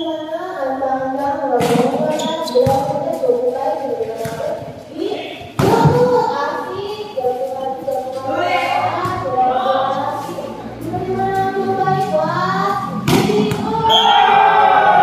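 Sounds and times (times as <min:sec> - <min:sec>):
crowd chanting and yelling: 0:08.2 - 0:15.0
volleyball spike slap: 0:13.1 - 0:14.0.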